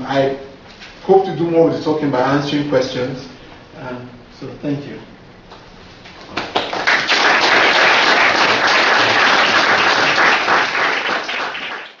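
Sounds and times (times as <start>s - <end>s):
audience applause: 6.4s - 12.0s.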